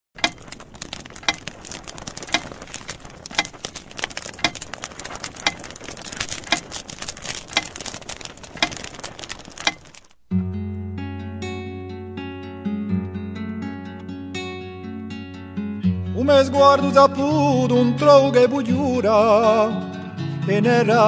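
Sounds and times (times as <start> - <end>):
sharp regular tick: 0.2 - 10.2
acoustic guitar music: 0.2 - 21.0.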